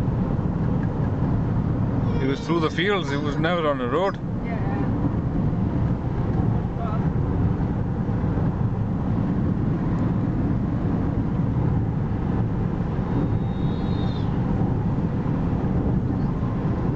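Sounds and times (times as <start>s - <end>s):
car engine and road noise: 0.0s - 16.9s
faint high whistle: 13.1s - 14.4s.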